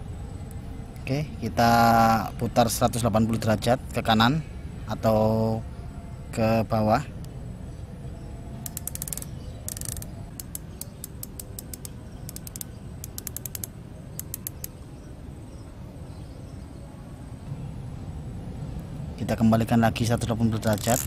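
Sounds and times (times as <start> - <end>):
riflescope turret clicks: 8.6 - 14.8, 20.6 - 21.0.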